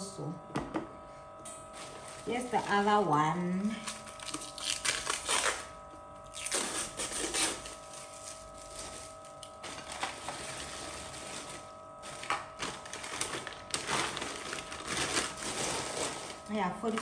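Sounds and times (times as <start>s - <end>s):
plastic packaging crinkling: 3.7s - 17.0s.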